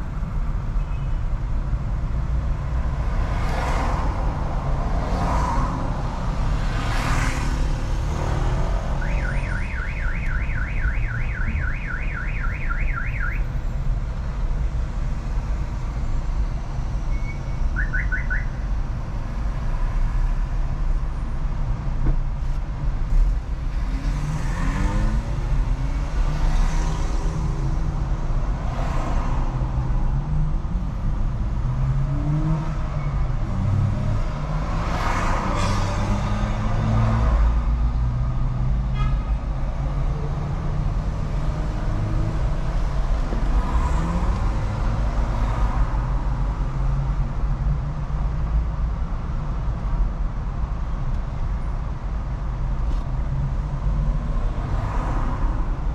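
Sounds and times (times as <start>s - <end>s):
car driving in traffic: 0.0s - 55.9s
vehicles passing: 0.0s - 55.9s
car alarm warbling: 9.0s - 13.4s, 17.8s - 18.5s.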